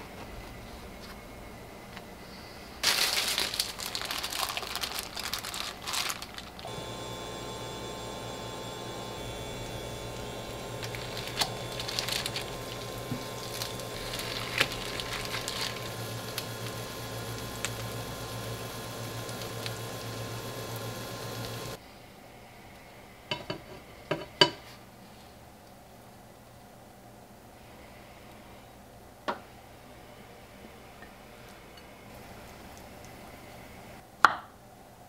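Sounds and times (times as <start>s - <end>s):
steady low hum: 0.0s - 34.1s
butter sizzling in a frying pan: 6.8s - 21.8s.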